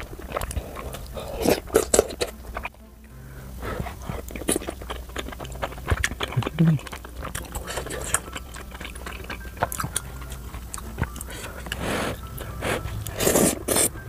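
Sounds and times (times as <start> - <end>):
breathy puffs of blowing: 3.1 - 4.3, 11.2 - 14.0.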